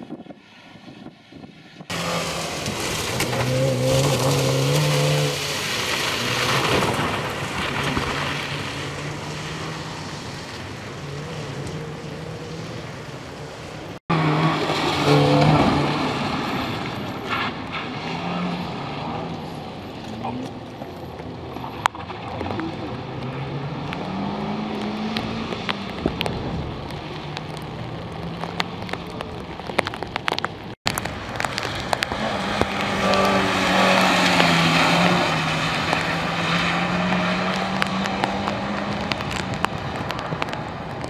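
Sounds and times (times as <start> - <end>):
rally car engine revving: 1.9 - 13.2, 14.1 - 20.6, 21.5 - 28.9, 31.8 - 40.7.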